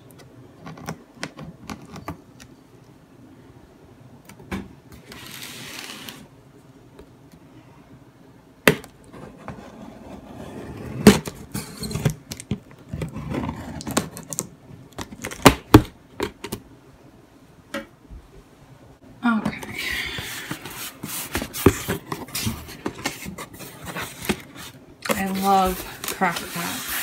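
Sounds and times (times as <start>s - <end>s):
cardboard rustling and scraping: 5.0s - 6.3s, 12.8s - 14.4s, 20.2s - 27.0s.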